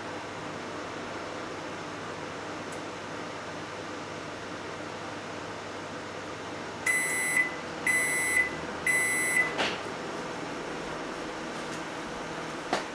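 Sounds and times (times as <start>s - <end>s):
microwave oven humming: 0.0s - 12.9s
high beeps: 6.9s - 9.5s.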